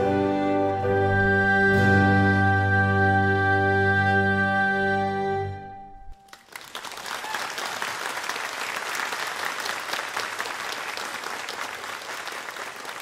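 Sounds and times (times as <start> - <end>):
hymn final chord: 0.0 - 6.2
congregation applauding: 6.1 - 13.0.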